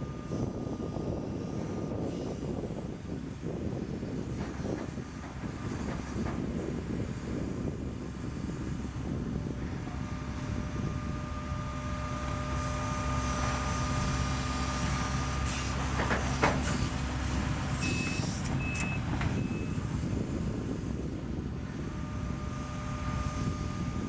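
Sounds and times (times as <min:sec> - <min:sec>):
excavator diesel engine under load: 0:00.0 - 0:24.0
hydraulic whine: 0:00.0 - 0:24.0
reversing alarm beeps: 0:17.8 - 0:19.9.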